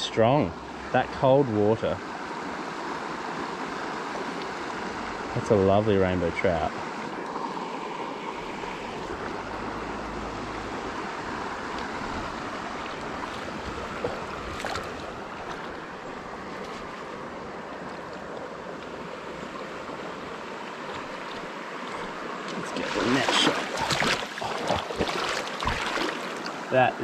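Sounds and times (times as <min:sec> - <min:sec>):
river flowing: 0:00.0 - 0:27.0
fish splashing: 0:07.3 - 0:17.2, 0:22.6 - 0:26.7.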